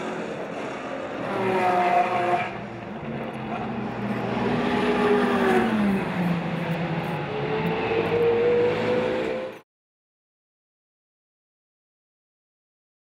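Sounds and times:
race car engines: 0.0s - 9.6s.

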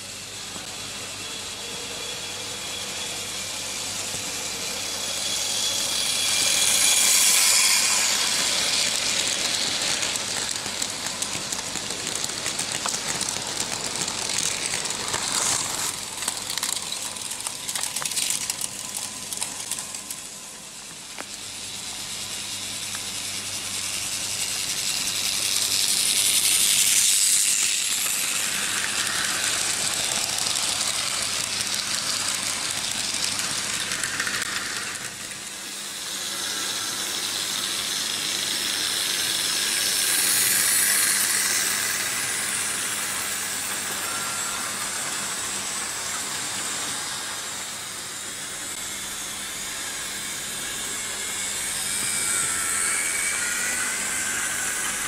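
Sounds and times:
model train wheels and motors rattling: 0.0s - 55.0s.

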